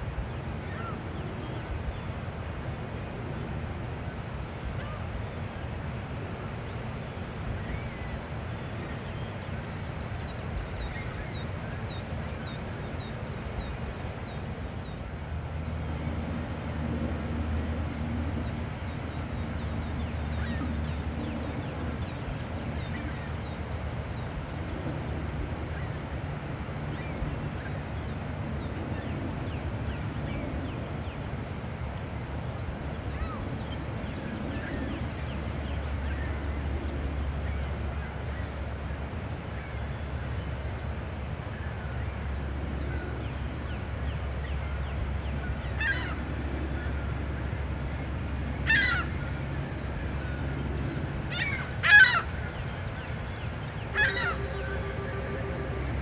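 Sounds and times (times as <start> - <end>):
birds calling: 7.6 - 26.0, 33.0 - 56.0
steady low rumble: 45.0 - 56.0.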